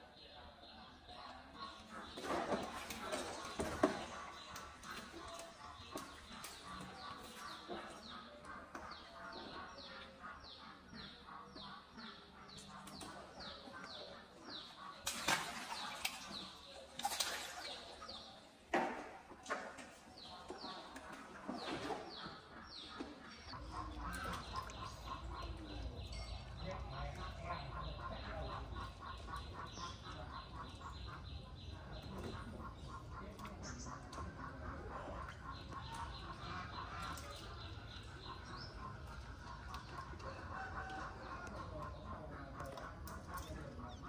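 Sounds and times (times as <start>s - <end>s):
birds chirping: 0.0s - 44.0s
water splashing in a pool: 1.4s - 8.7s, 12.8s - 20.1s.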